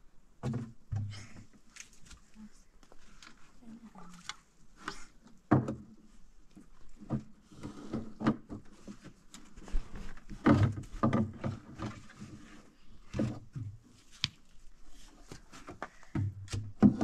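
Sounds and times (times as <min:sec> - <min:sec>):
irregular knocks and thuds: 0:00.4 - 0:01.5, 0:05.5 - 0:06.0, 0:09.7 - 0:12.2.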